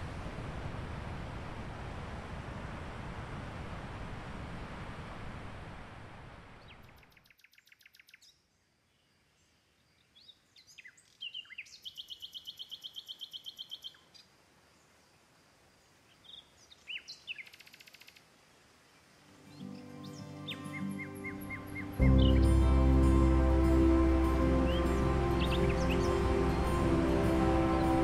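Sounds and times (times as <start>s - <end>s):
sea and wind noise: 0.0s - 6.9s, 19.0s - 28.0s
birds chirping and singing: 19.5s - 28.0s
rapid pulsed bird trills: 19.5s - 28.0s.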